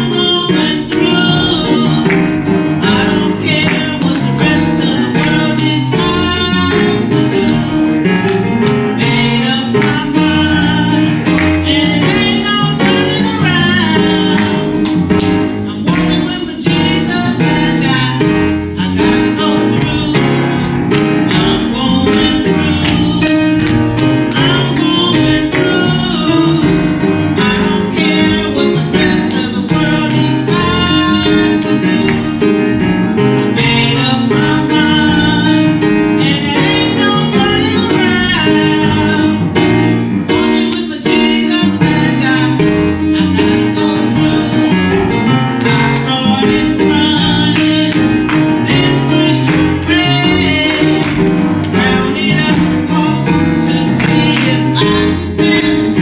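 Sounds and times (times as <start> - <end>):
woman singing gospel song: 0.0 - 7.9, 9.0 - 15.0, 15.7 - 32.6, 45.9 - 56.0
instrumental accompaniment: 0.0 - 56.0.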